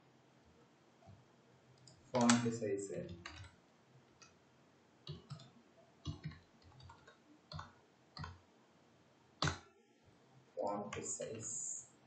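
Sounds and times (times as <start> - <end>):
keyboard keys and mouse clicking: 1.8 - 4.4, 5.1 - 8.4, 9.4 - 9.7.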